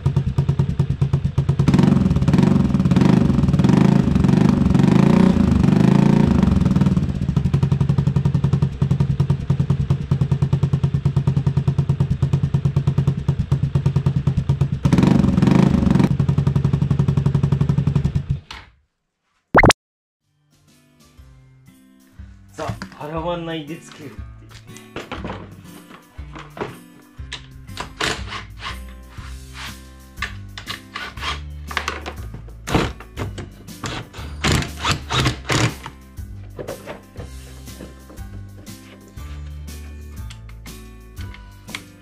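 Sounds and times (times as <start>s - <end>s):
scooter engine idling: 0.0s - 3.6s, 6.2s - 14.9s
scooter engine revving: 0.0s - 18.3s.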